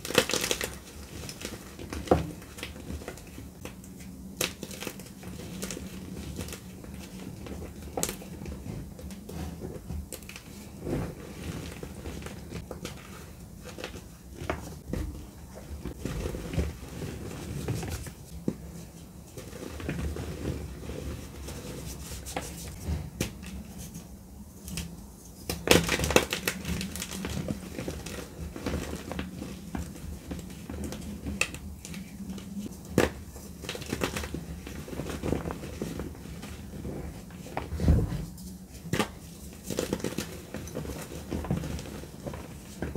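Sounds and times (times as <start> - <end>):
hands crumbling dry chalk: 0.0 - 42.9.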